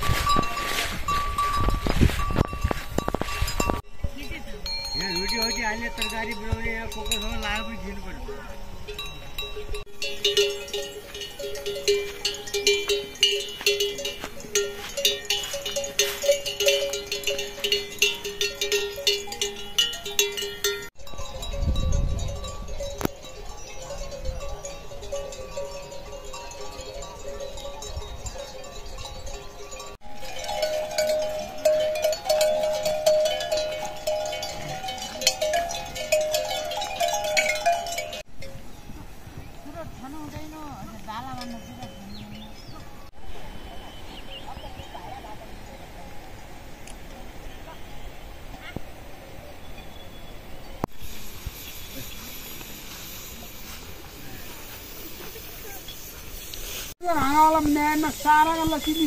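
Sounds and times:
livestock bells clanking: 0.0 - 38.8, 39.7 - 43.1, 57.1 - 59.0.

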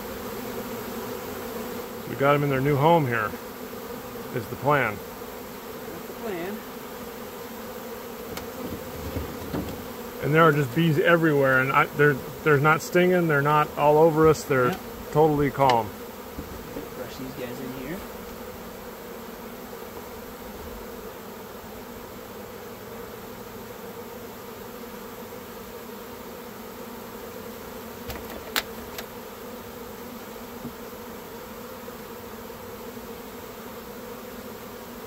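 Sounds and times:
bee swarm buzzing: 0.0 - 35.0
sharp taps: 15.6 - 15.9.

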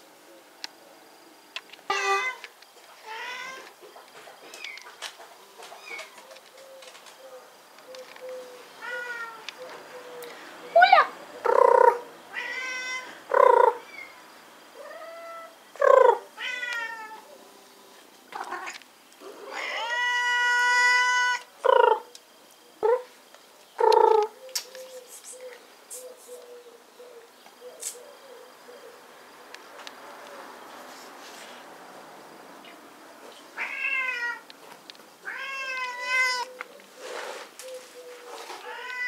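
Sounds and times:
cats meowing: 1.9 - 2.4, 3.0 - 3.7, 8.8 - 9.5, 10.7 - 14.1, 14.8 - 17.3, 18.3 - 22.0, 33.6 - 34.5, 35.2 - 36.7, 38.4 - 39.0.

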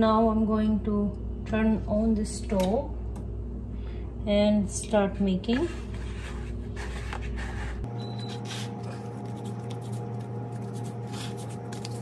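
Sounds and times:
steady multi-tone hum: 0.0 - 12.0
hands kneading dough: 5.6 - 12.0.

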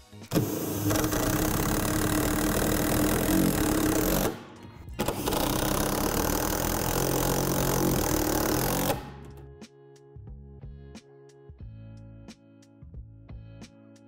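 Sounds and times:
background music: 0.0 - 14.0
power driver driving screws: 0.3 - 9.4.

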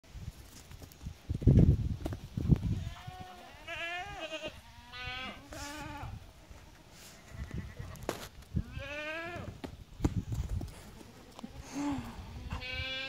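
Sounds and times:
lamb bleating: 2.8 - 6.2, 8.6 - 9.5, 11.3 - 13.0.

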